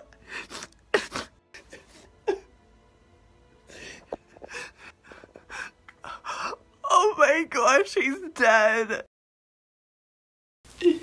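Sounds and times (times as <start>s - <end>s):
gasping sniffling breaths: 0.1s - 2.2s, 3.7s - 6.6s.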